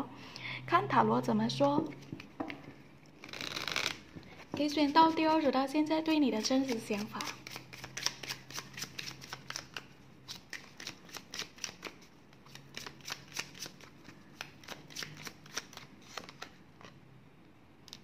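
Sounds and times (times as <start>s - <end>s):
cards being shuffled by hand: 3.2s - 5.2s, 6.4s - 16.9s.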